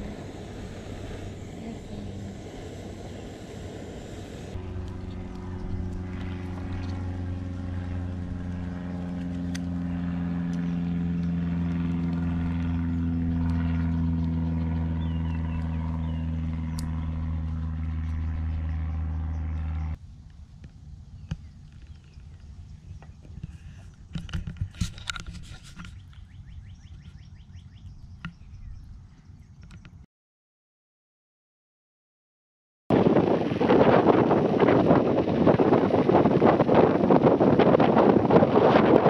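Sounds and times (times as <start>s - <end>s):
engine idling low hum: 0.0s - 30.0s.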